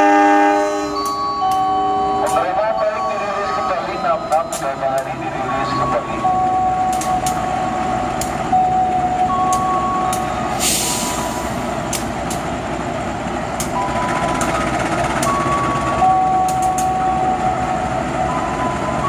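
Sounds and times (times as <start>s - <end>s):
locomotive engine rumble: 0.0s - 19.0s
hiss of air: 10.6s - 11.6s
sharp clicks: 13.6s - 13.8s.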